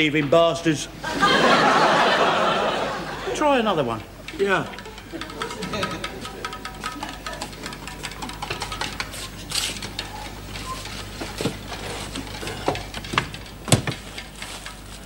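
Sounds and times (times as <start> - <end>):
sharp knocks: 4.2 - 9.2
wooden crate slats creaking: 4.2 - 15.0.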